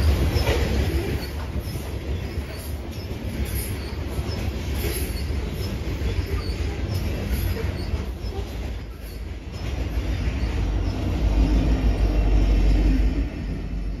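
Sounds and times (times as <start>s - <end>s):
diesel locomotive engine rumble: 0.0s - 14.0s
freight train cars rumbling: 0.0s - 14.0s
train wheel squeals: 0.0s - 14.0s.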